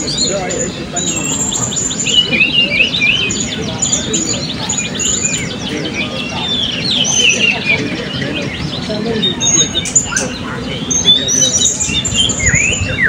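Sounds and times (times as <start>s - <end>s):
parrots chirping in chorus: 0.0s - 8.7s.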